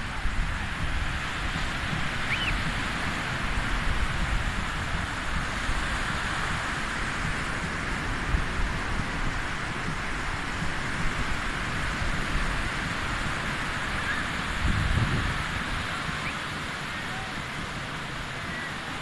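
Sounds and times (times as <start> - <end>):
small waves breaking on sand: 0.0 - 19.0
wind rumbling on microphone: 0.0 - 19.0.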